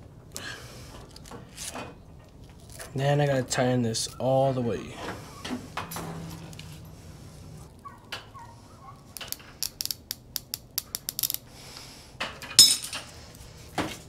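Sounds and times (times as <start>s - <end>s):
metallic clank: 5.0s - 7.7s
sharp metal clicks: 9.2s - 11.4s.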